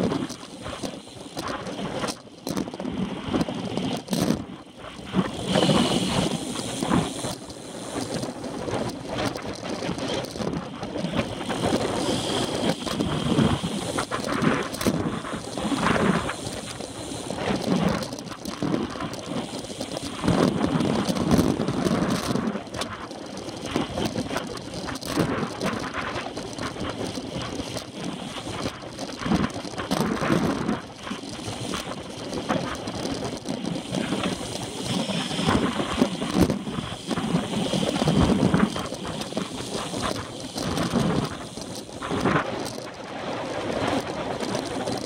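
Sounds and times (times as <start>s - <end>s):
bike rattling and knocking: 0.0s - 45.0s
wind rushing over microphone: 0.0s - 45.0s
tyres hissing on tarmac: 5.0s - 9.1s, 11.2s - 20.3s, 33.8s - 42.2s.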